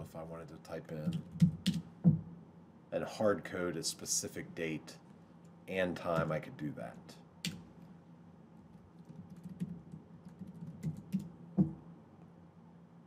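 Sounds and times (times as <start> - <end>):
keyboard typing: 9.0 - 11.3.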